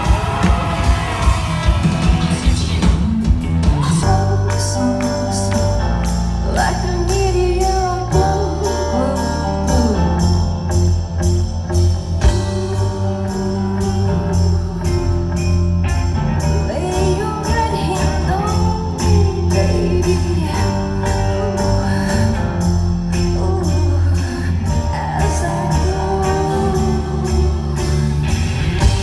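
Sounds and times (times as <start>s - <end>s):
live rock band playing: 0.0s - 29.0s
woman singing into a microphone: 3.8s - 10.4s, 16.6s - 22.3s, 23.2s - 28.3s.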